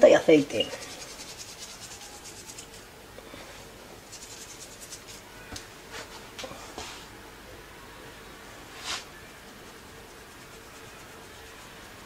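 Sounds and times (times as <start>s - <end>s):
salt rubbed between fingers: 0.6s - 2.9s, 4.0s - 5.3s, 8.7s - 12.0s.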